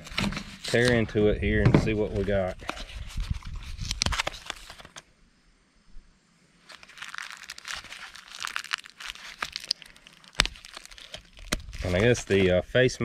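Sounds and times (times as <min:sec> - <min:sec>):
packaging torn and crinkled: 0:02.8 - 0:05.0, 0:06.6 - 0:12.5.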